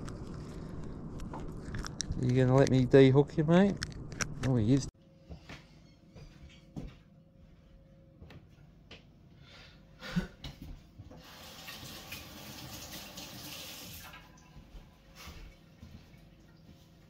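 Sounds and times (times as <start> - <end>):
water running from tap: 11.2 - 14.6.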